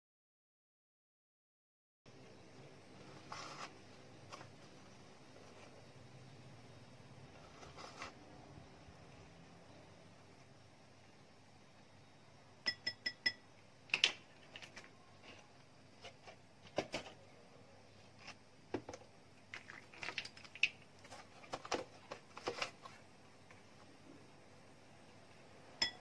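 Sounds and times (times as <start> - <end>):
plastic tubs clicking and scraping: 18.2 - 23.0.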